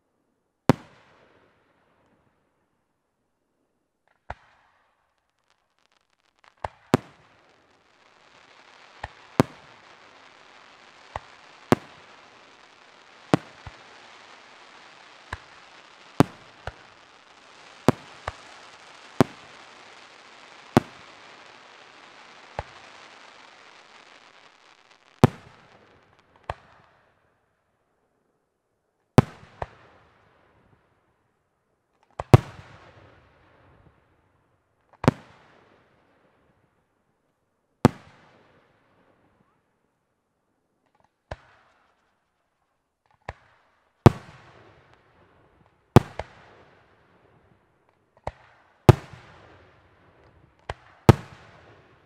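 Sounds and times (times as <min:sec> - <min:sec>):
firework shells bursting: 0:05.2 - 0:26.5
steady hiss: 0:05.3 - 0:26.2.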